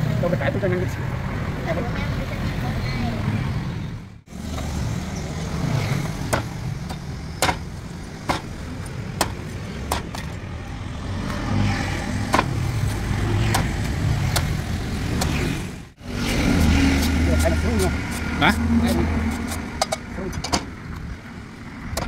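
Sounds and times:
cleaver chopping coconut on wood: 6.2 - 8.5, 12.3 - 14.6.

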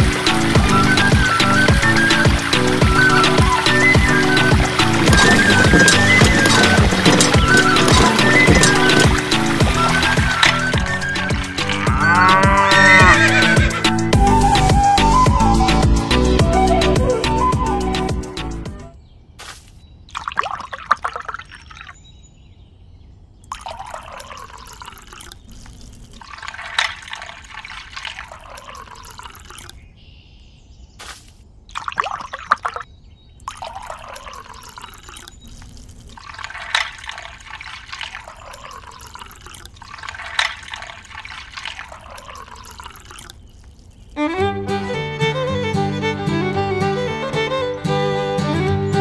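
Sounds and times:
water trickling from watering can: 0.0 - 13.9, 20.1 - 22.0, 23.5 - 29.8, 31.7 - 44.3.

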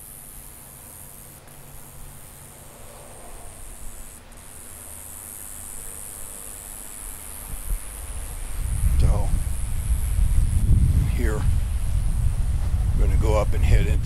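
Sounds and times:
insect chorus hissing: 0.0 - 14.0.

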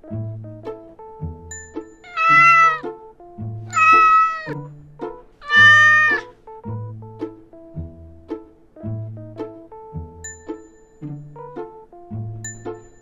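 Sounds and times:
plucked-string background music: 0.0 - 13.0
cat meowing: 2.0 - 2.8, 3.7 - 4.6, 5.4 - 6.3.

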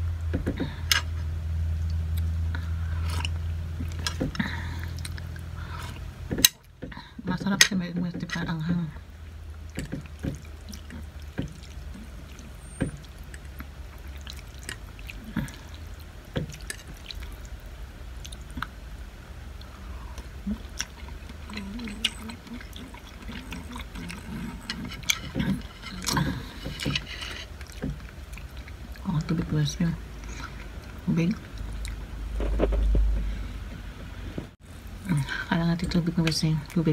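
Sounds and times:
steady low hum: 0.0 - 36.9
chewing and slurping noodles: 9.8 - 17.6, 19.6 - 29.3
fork scraping ceramic plate: 21.8 - 27.6.

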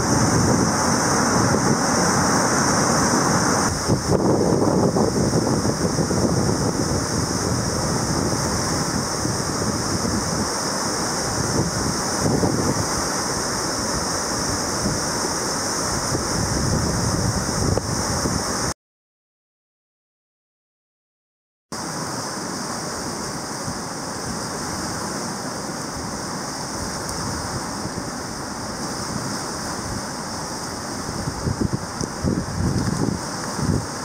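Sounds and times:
river rapids rushing: 0.0 - 18.7, 21.8 - 34.0
wind buffeting microphone: 0.0 - 18.7, 30.8 - 34.0.

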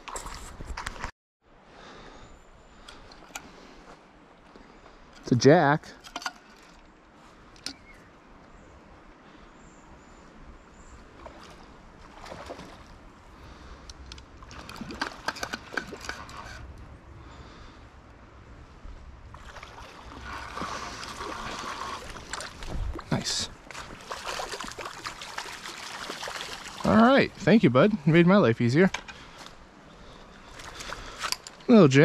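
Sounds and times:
water splashing: 11.2 - 13.0, 19.3 - 27.5
moving water washing: 19.3 - 28.2.

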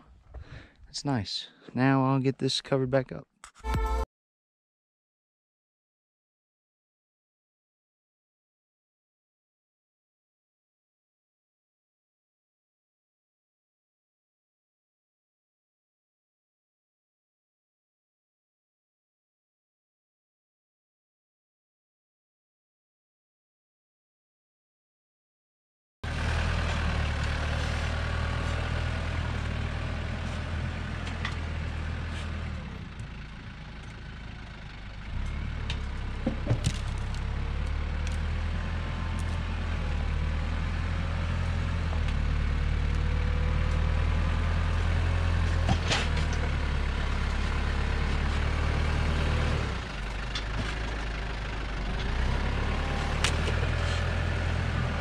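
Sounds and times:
tractor engine running: 26.0 - 55.0.

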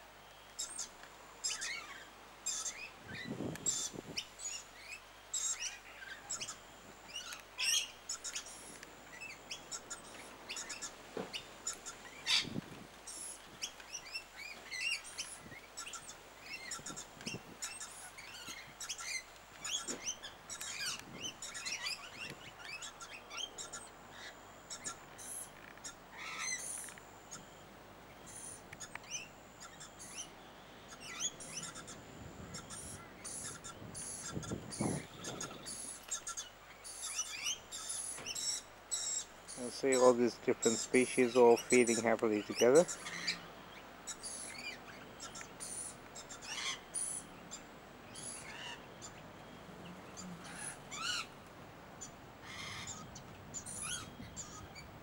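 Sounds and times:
birds chirping and calling: 0.5 - 55.0.

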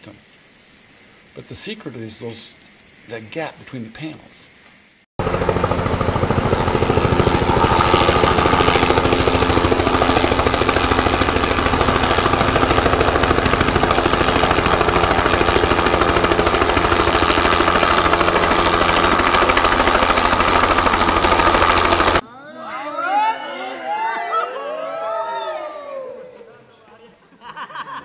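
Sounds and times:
helicopter engine drone: 5.2 - 22.2
helicopter rotor chopping: 5.2 - 22.2.

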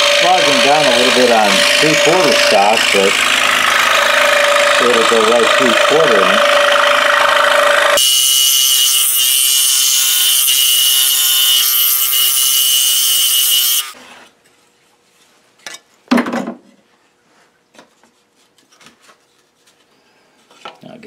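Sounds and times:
scroll saw cutting thin wood: 0.0 - 14.0.

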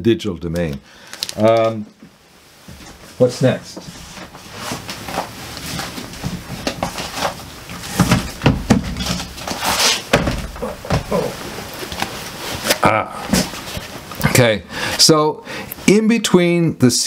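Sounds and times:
record jackets being handled: 1.0 - 1.8, 2.6 - 14.2.

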